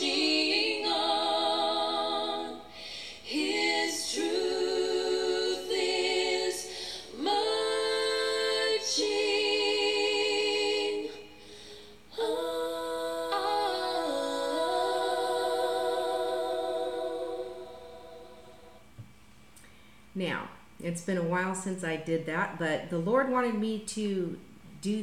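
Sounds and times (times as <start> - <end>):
woman singing with vibrato: 0.0 - 11.4, 12.1 - 18.9
singer breathing: 2.7 - 3.3, 6.7 - 7.2, 11.4 - 12.1, 19.6 - 20.1.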